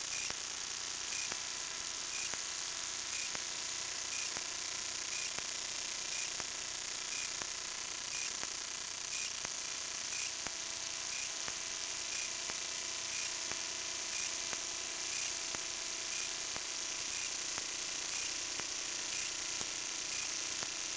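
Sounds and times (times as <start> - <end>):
faint electronic whine: 0.0 - 20.9
faint ticks: 1.1 - 1.4, 2.1 - 2.4, 4.1 - 4.4, 7.1 - 7.4, 9.1 - 9.5, 10.1 - 10.4.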